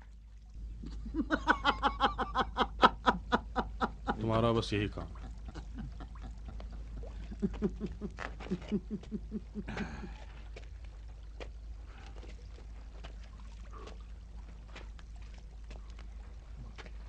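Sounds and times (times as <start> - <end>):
man laughing: 0.9 - 10.2.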